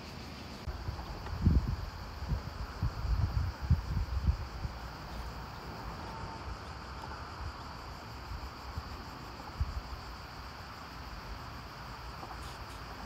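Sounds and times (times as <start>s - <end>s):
wind buffeting microphone: 0.7s - 10.0s.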